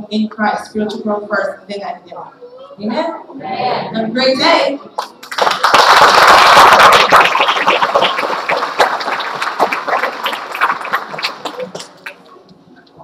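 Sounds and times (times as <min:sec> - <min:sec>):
audience applauding: 0:05.0 - 0:12.3.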